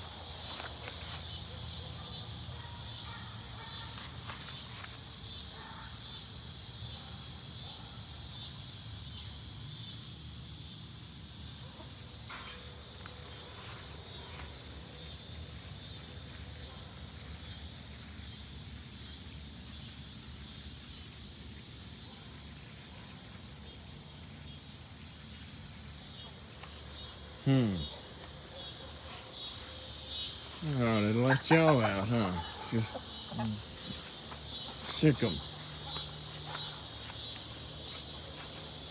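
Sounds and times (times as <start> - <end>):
insects buzzing: 0.0 - 38.9.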